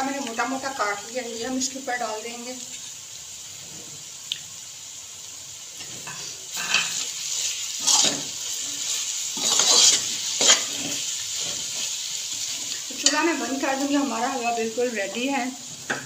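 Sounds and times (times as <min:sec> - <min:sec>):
food frying: 0:00.0 - 0:16.0
fork scraping metal pan: 0:05.8 - 0:13.3.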